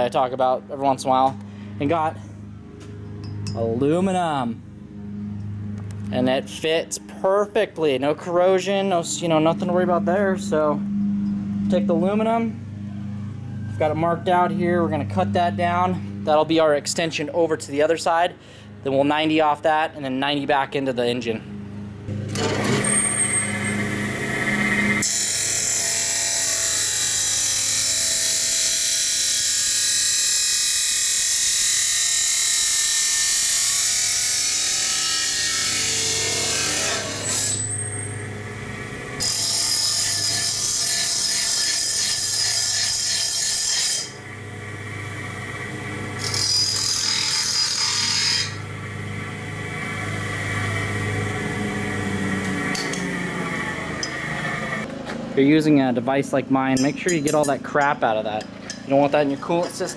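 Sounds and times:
chop saw motor hum: 0:21.5 - 0:32.2, 0:44.0 - 0:55.4
saw blade grinding metal: 0:22.3 - 0:38.3, 0:39.2 - 0:44.3, 0:46.2 - 0:48.7, 0:56.7 - 0:59.9.

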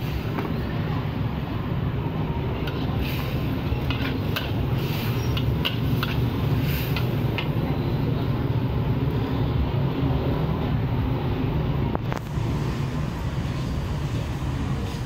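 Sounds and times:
metal ladle scraping a wok: 0:02.6 - 0:07.5.

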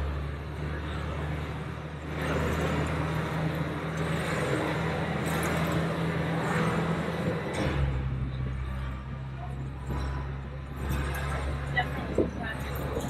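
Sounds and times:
bus engine drone: 0:00.0 - 0:13.0
road and wind noise: 0:00.0 - 0:13.0.

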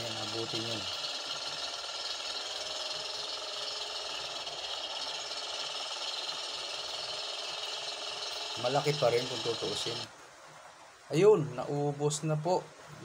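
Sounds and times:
small boat engine rattling: 0:00.0 - 0:10.1.

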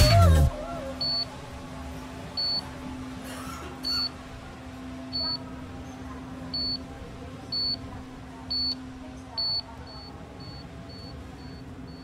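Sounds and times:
steady low hum: 0:00.0 - 0:12.0
electronic beeper beeping: 0:02.4 - 0:02.7, 0:03.8 - 0:04.2, 0:06.5 - 0:06.9, 0:07.5 - 0:07.8, 0:09.4 - 0:12.0.

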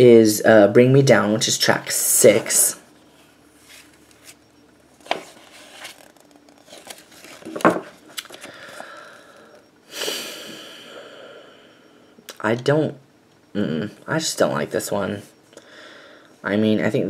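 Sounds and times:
paper pages rustling: 0:03.6 - 0:04.4, 0:05.0 - 0:08.9.

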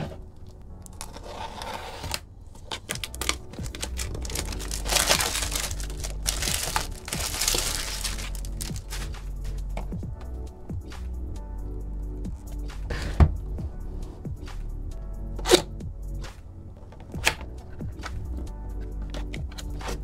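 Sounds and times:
background music: 0:00.0 - 0:20.0
wrapping crinkling and tearing: 0:00.3 - 0:09.3.

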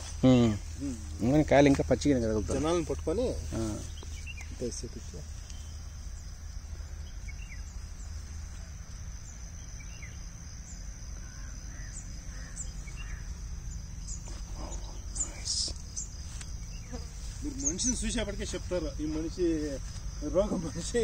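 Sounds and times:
high insect drone: 0:00.0 - 0:21.0
low steady rumble: 0:00.0 - 0:21.0
bird chirps: 0:02.4 - 0:19.4.

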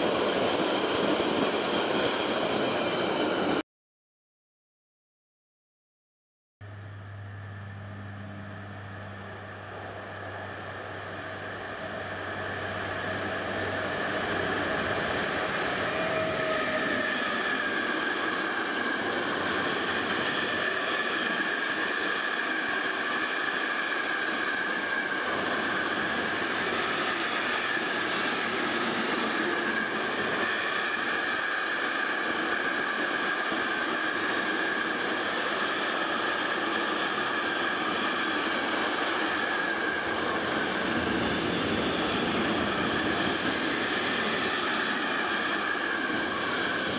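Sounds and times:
high whine of train: 0:00.0 - 0:03.6, 0:06.6 - 0:46.9
train wheels rolling on rails: 0:11.1 - 0:46.9.

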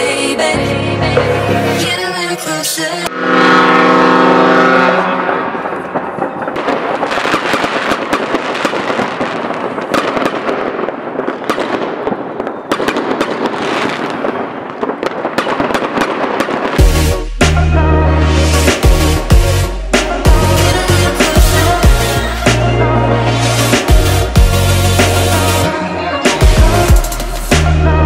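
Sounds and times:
fireworks crackling: 0:02.0 - 0:17.7, 0:18.3 - 0:27.8
loud held tone: 0:03.1 - 0:06.4
fireworks bangs and pops: 0:04.4 - 0:17.6, 0:23.3 - 0:27.8.

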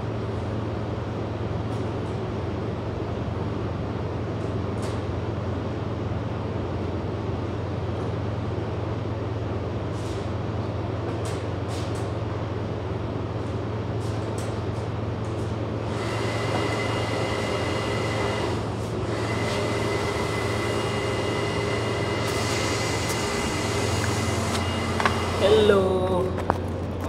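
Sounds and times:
low mechanical drone: 0:00.0 - 0:27.0.

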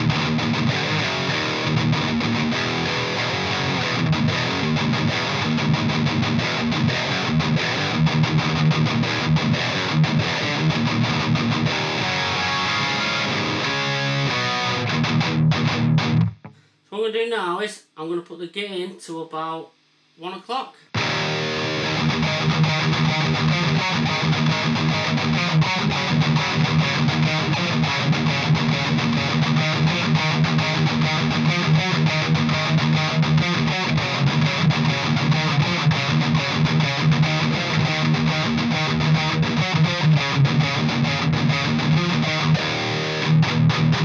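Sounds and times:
distorted electric guitar: 0:00.0 - 0:16.9, 0:19.1 - 0:44.0.

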